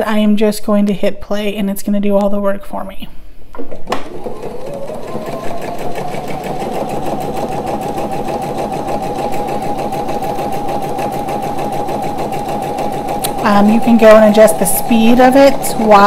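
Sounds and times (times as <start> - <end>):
sewing machine running: 3.8 - 16.0.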